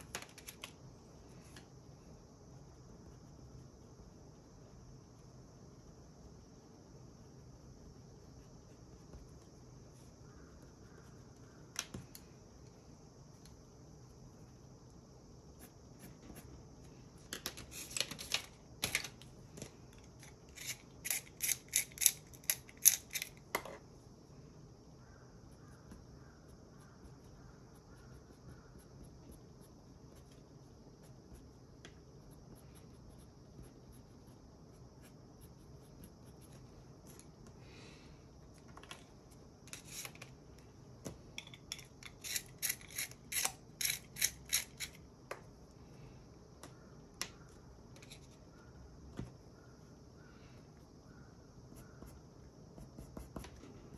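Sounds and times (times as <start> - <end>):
colored pencil scratching on paper: 25.6 - 36.6, 52.8 - 53.9.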